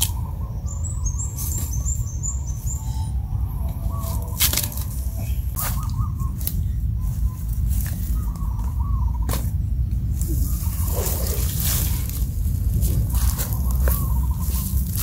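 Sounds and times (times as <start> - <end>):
small bird warbling calls: 0.0 - 9.6, 10.2 - 15.0
wind rumbling on microphone: 0.0 - 15.0
dry sticks snapping: 4.4 - 5.0.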